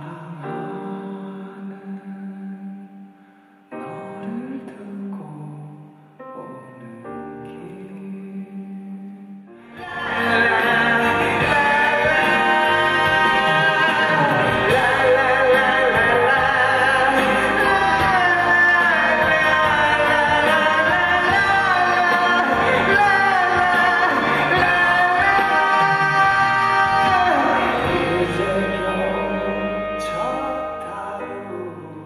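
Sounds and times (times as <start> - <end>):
man singing a ballad: 0.0 - 3.0, 3.7 - 32.0
instrumental accompaniment: 9.5 - 32.0.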